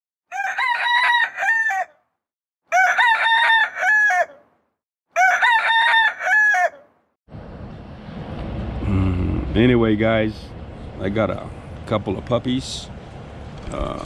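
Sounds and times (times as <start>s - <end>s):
rooster crowing: 0.3s - 2.1s, 2.7s - 7.0s
outdoor background noise: 2.7s - 14.0s.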